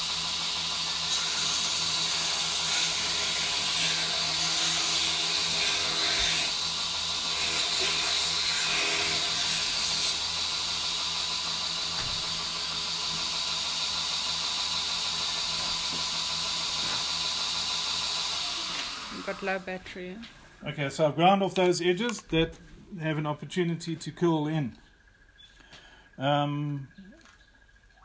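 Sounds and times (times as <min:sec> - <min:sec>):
electric grinder grinding: 0:00.0 - 0:19.9.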